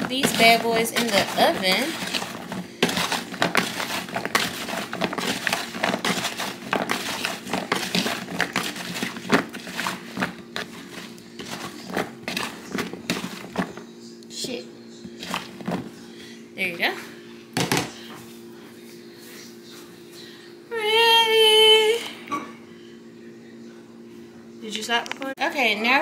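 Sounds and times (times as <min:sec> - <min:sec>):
crinkling and rustling: 0:00.0 - 0:13.8.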